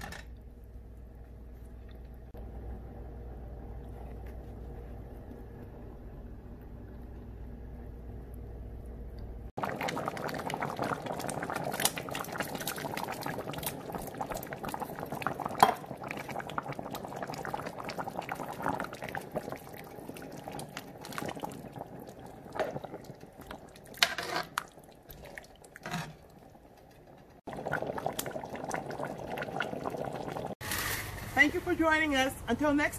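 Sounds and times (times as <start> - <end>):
low steady hum: 0.0 - 24.0
soup bubbling at a boil: 9.5 - 30.6.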